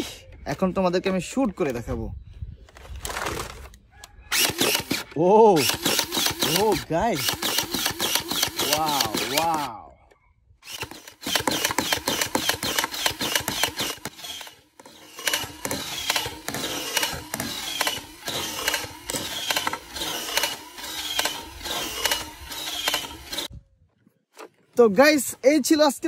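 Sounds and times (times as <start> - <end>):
toy blaster firing rapidly: 4.3 - 9.7, 10.6 - 23.5.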